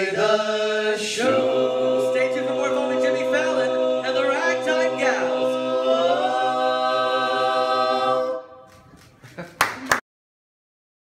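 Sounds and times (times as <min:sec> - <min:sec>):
male voices singing in close harmony: 0:00.0 - 0:08.5.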